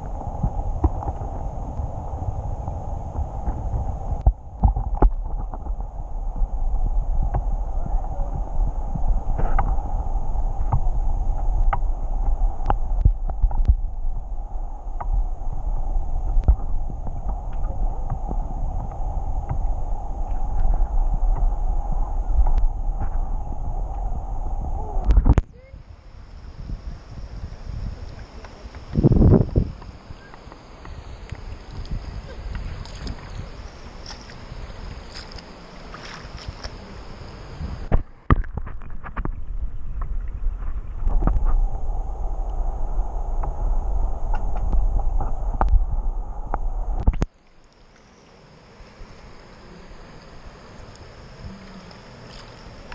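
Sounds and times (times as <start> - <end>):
underwater river current rumble: 0.0 - 52.9
muffled underwater clicks and knocks: 3.4 - 5.9, 9.3 - 9.8, 10.6 - 14.0, 16.4 - 21.6, 37.9 - 41.6, 44.3 - 47.3.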